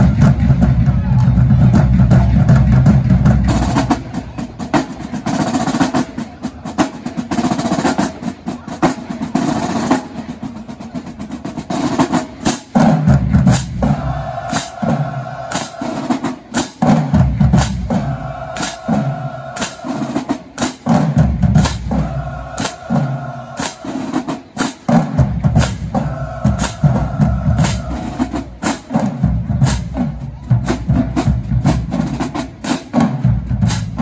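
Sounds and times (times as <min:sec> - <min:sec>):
bass drums: 0:00.0 - 0:03.9, 0:16.9 - 0:19.0, 0:20.9 - 0:23.1, 0:25.0 - 0:32.3
snare drums rolling: 0:00.0 - 0:34.0.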